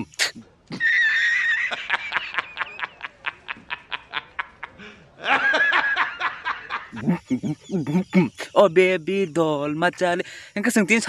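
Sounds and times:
high shrill cry: 0.7 - 1.8
man laughing hard: 0.7 - 8.3.

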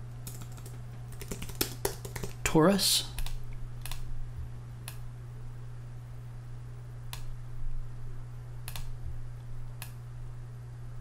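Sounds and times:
low hum: 3.0 - 11.0
keyboard and mouse clicks: 3.2 - 4.0, 8.7 - 8.9.

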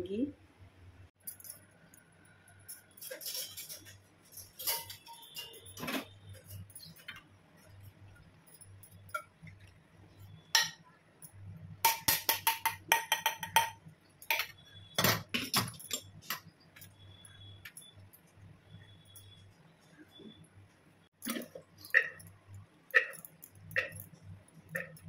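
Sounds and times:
steel kitchenware clinking: 1.2 - 20.2, 21.2 - 25.0.

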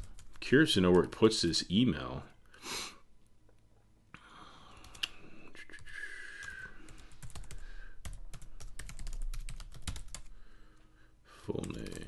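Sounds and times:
typing on computer keyboard: 6.9 - 10.3, 11.6 - 12.0.

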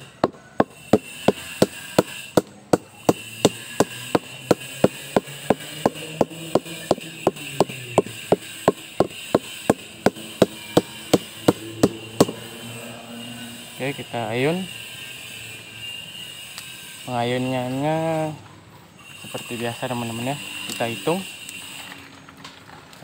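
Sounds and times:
flower stalk being beaten: 0.0 - 12.5.

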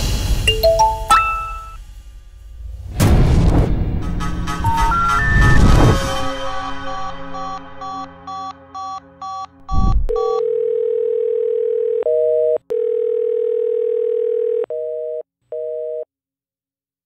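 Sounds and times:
two-tone busy signal: 6.4 - 11.3
deep thud: 9.7 - 10.2
telephone dial tone: 10.1 - 16.1.

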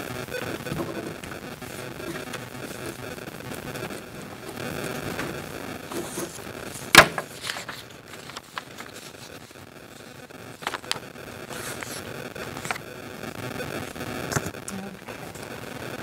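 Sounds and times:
room noise: 0.0 - 16.0
paper rustling and knocks: 5.1 - 9.6, 10.6 - 12.0.

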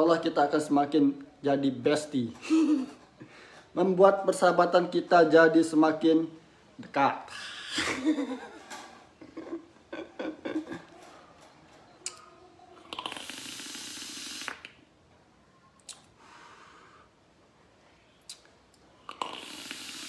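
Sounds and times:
man chuckling: 2.4 - 3.3, 7.7 - 11.0
hissing vape draw: 12.8 - 14.8, 19.1 - 20.0
faint hiss of exhaling: 12.9 - 14.7, 16.2 - 17.2, 19.1 - 20.0.

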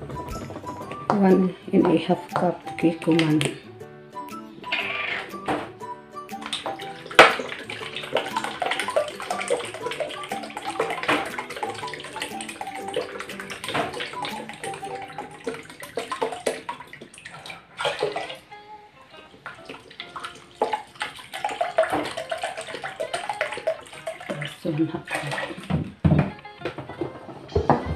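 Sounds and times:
background music: 0.0 - 27.9
liquid pouring and splashing: 4.6 - 18.5, 19.4 - 26.4.

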